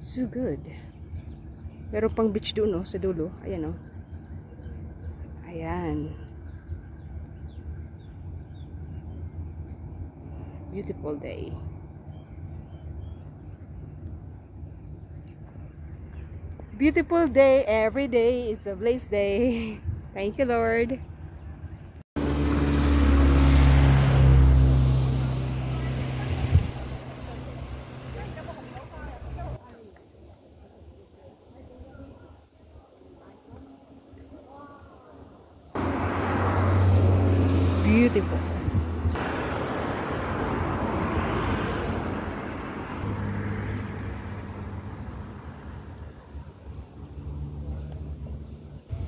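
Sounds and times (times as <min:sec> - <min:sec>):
low steady engine hum: 0:00.0 - 0:29.9, 0:35.4 - 0:49.0
vehicle engine running: 0:22.2 - 0:29.6
vehicle passing: 0:22.2 - 0:29.6, 0:35.8 - 0:49.0.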